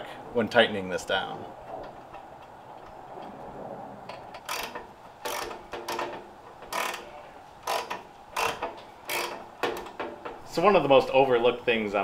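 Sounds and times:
socket ratchet clicking: 0:04.4 - 0:07.0, 0:07.6 - 0:10.0.

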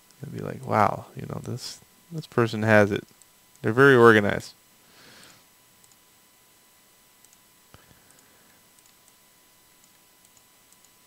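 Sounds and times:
computer mouse clicks: 0:05.8 - 0:06.0, 0:07.2 - 0:09.2, 0:09.8 - 0:11.0.

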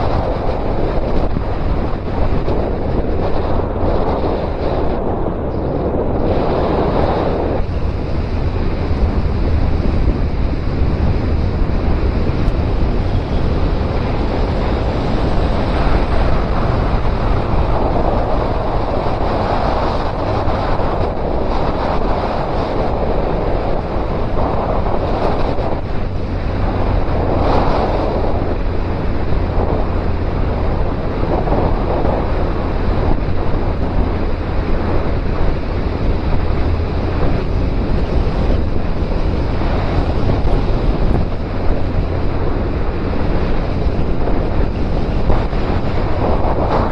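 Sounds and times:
motorcycle engine drone: 0:00.0 - 0:46.9
wind rushing over microphone: 0:00.0 - 0:46.9.

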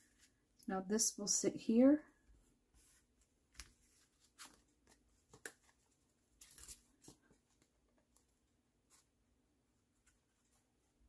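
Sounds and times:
card rustling: 0:03.5 - 0:08.3.

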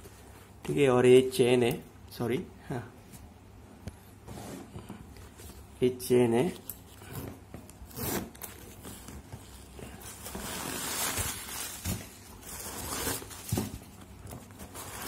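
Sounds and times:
bag and tissue paper rustling: 0:08.7 - 0:15.0.

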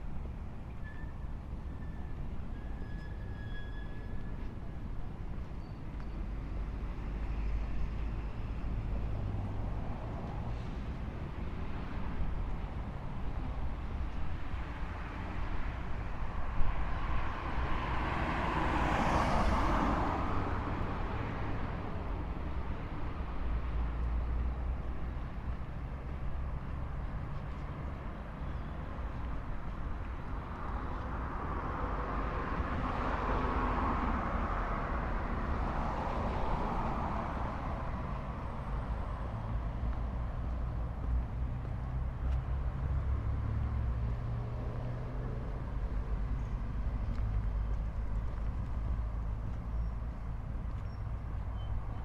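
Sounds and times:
low rumble of traffic: 0:00.0 - 0:52.0
car passing: 0:16.2 - 0:28.0.

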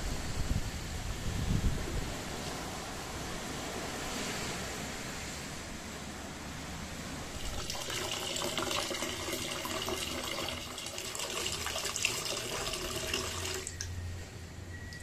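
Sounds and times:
steady background hiss: 0:00.0 - 0:15.0
water pouring into container: 0:07.3 - 0:13.9.

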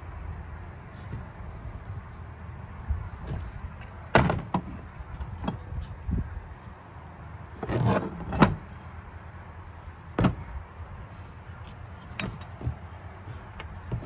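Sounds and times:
handling rustle: 0:06.6 - 0:14.0.

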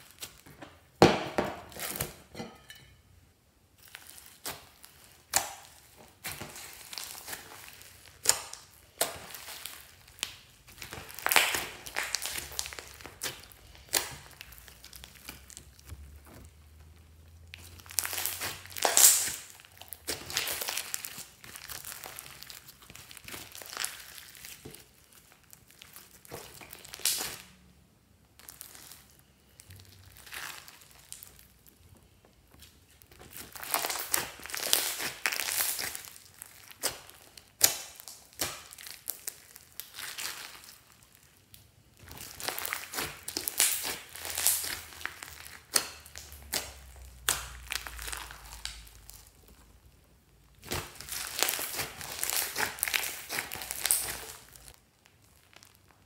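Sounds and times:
slime clicking and popping: 0:04.4 - 0:15.9, 0:17.5 - 0:24.9, 0:25.8 - 0:27.5, 0:41.5 - 0:49.3, 0:50.5 - 0:54.8.

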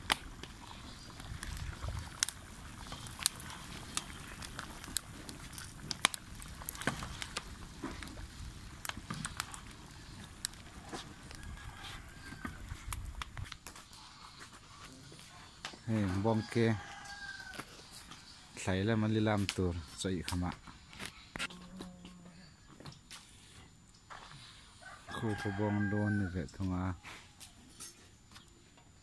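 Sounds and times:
log fire crackling and popping: 0:00.0 - 0:28.6.

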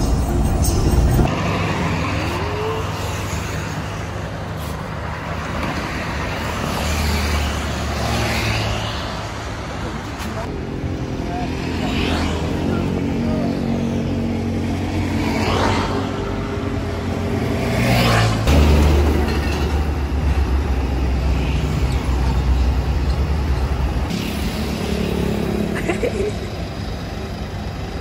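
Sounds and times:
road traffic whooshing past: 0:00.0 - 0:26.2
bus engine idling: 0:18.9 - 0:28.0.

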